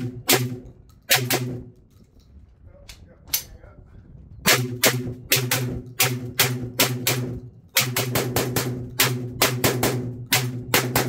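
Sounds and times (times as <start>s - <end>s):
rapid shotgun shots: 0.0s - 1.7s, 4.5s - 11.0s.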